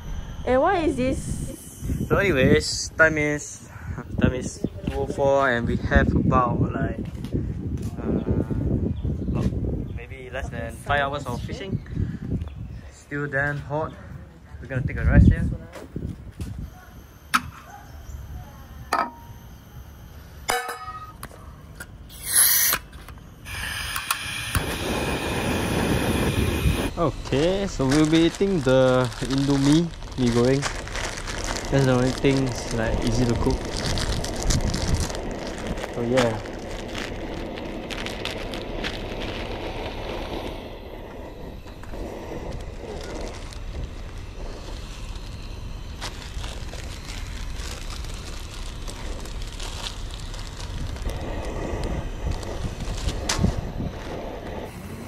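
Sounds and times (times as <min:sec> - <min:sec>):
gas burner hissing: 0:00.0 - 0:06.5, 0:22.0 - 0:55.0
wind on microphone: 0:03.8 - 0:12.9, 0:23.5 - 0:45.3, 0:49.0 - 0:55.0
gas hiss: 0:22.1 - 0:55.0
packets crackling being torn: 0:27.3 - 0:54.5.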